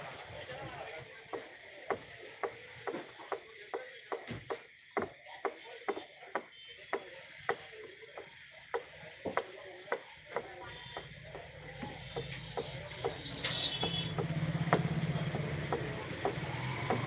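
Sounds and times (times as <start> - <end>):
sharp knocks: 4.1 - 17.0.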